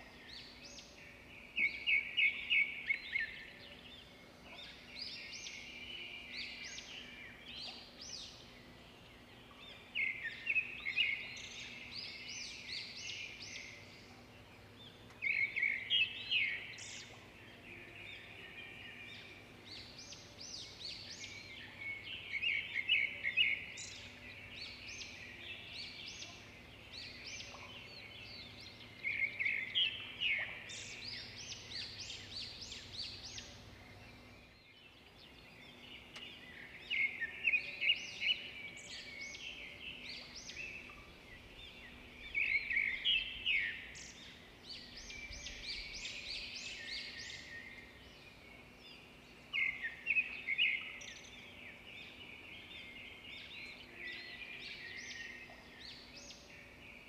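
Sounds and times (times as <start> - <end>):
birds chirping and twittering: 0.0 - 57.0
faint steady hum: 0.0 - 57.0.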